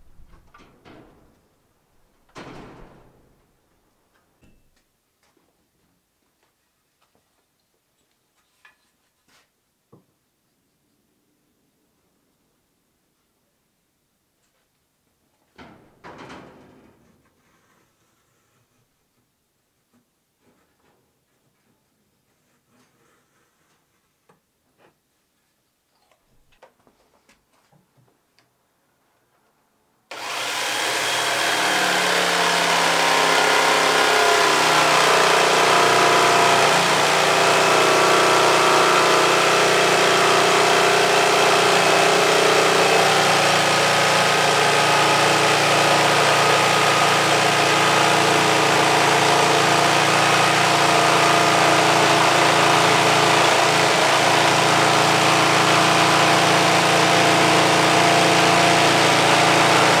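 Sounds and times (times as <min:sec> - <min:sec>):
jigsaw cutting wood: 0:30.1 - 1:00.0.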